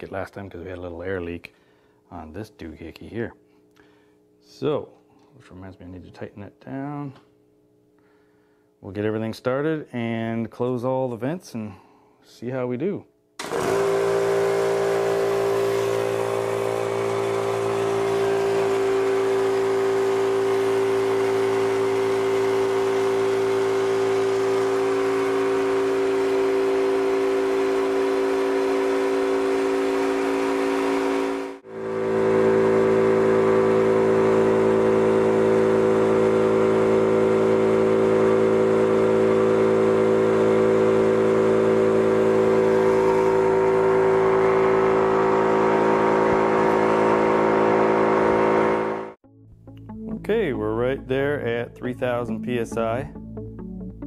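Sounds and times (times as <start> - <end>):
air compressor humming: 13.4 - 49.2.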